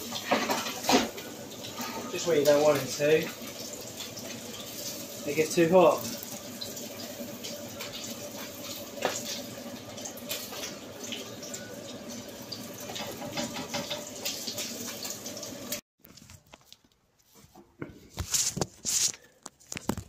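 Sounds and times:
fish frying in oil: 0.0 - 15.8.

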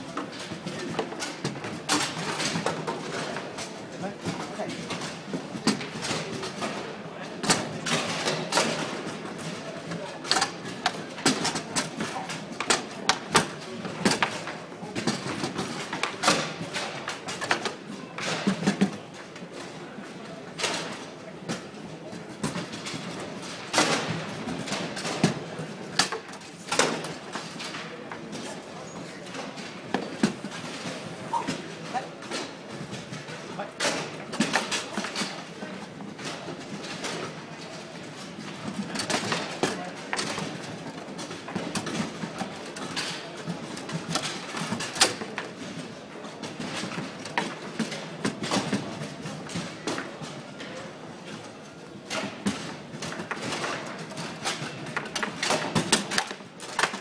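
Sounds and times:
table football clacks and knocks: 52.1 - 57.0.

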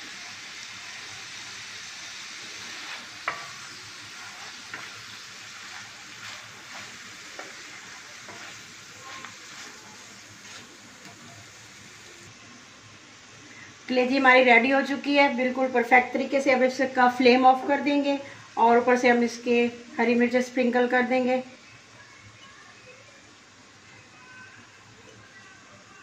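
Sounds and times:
liver sizzling in oil: 0.0 - 26.0
wooden spatula stirring: 2.6 - 12.0.

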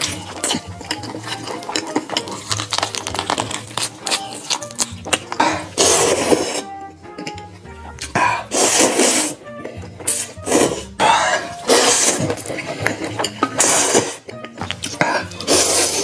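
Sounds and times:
chewing with wet mouth clicks: 0.0 - 5.8
loud slurp of noodles: 5.4 - 6.8, 8.2 - 9.4, 10.1 - 12.4, 13.6 - 14.2, 15.0 - 16.0.

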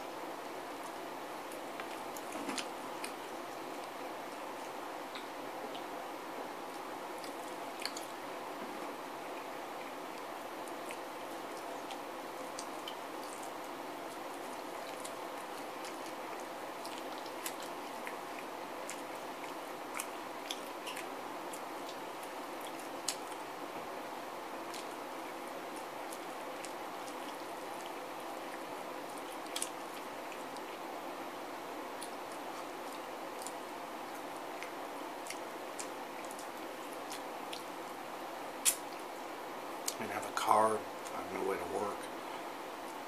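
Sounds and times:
steady background hiss: 0.0 - 43.0
person chewing chicken wings: 6.6 - 23.6, 24.6 - 30.8
wet mouth clicks and smacks: 38.6 - 39.0.

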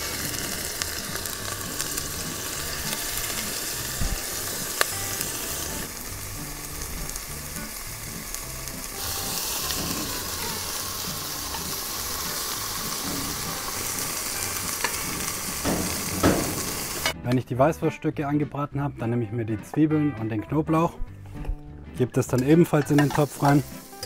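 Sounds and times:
sausage sizzling in butter: 0.0 - 17.2, 22.4 - 24.0.

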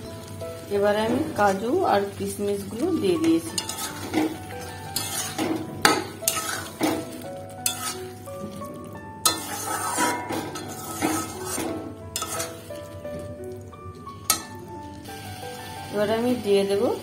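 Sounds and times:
soft sizzle: 0.0 - 17.0
metal spatula scraping pan: 3.5 - 8.2, 9.2 - 12.9.

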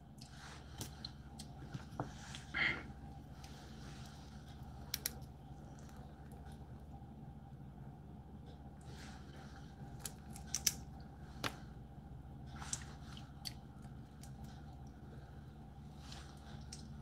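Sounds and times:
low steady hum: 0.0 - 17.0
crab shell cracking: 4.8 - 6.0, 9.9 - 11.6.

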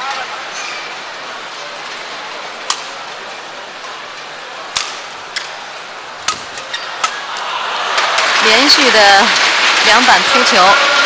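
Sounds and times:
arena crowd noise: 0.0 - 11.0
rackets hitting shuttlecock: 4.7 - 5.6, 6.2 - 7.3.

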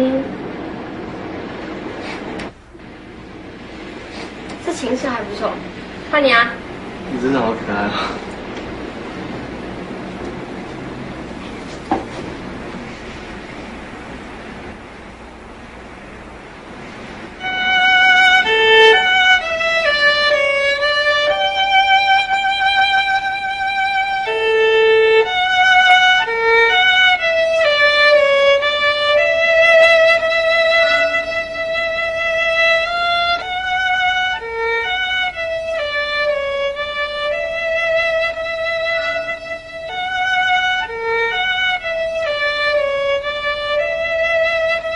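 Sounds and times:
soft hiss: 0.0 - 44.9
solo violin slow melody: 17.4 - 44.9.

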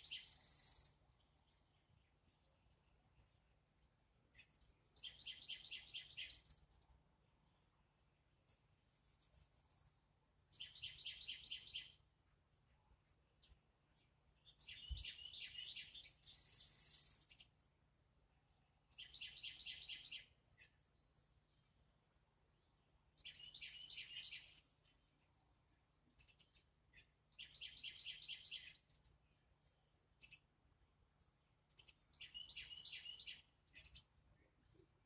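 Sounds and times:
songbird singing rapid notes: 0.0 - 3.6, 4.3 - 7.7, 10.5 - 12.0, 13.4 - 17.6, 18.5 - 21.8, 22.6 - 25.4, 26.1 - 30.5, 31.7 - 35.0.

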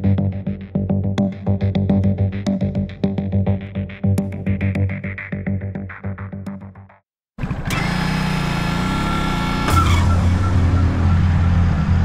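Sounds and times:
motorcycle engine running: 7.4 - 12.0.

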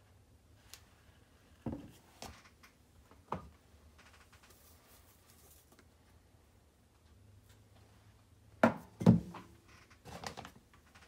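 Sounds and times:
faint rustle: 4.0 - 6.3
bottles and cans knocking on counter: 8.6 - 9.4.

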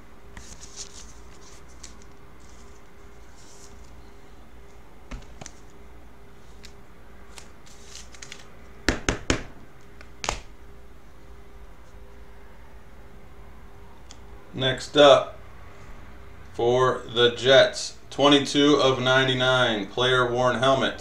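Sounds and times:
faint steady hum: 0.0 - 21.0
cards clicking and rustling: 0.4 - 4.0, 5.1 - 5.8, 6.5 - 8.7, 9.8 - 10.5.

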